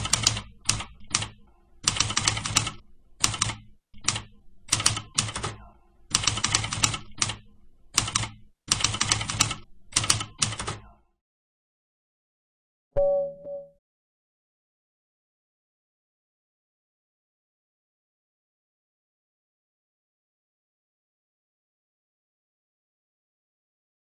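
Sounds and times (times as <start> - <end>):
typewriter keys striking: 0.0 - 7.4, 8.0 - 10.8.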